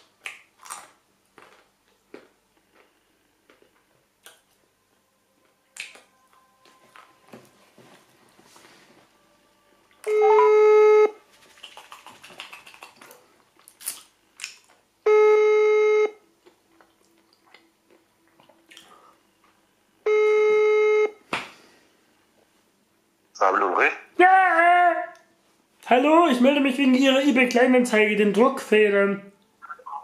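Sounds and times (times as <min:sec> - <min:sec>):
telephone ringback tone beeps: 0:10.1 - 0:11.2, 0:15.1 - 0:16.2, 0:20.1 - 0:21.2.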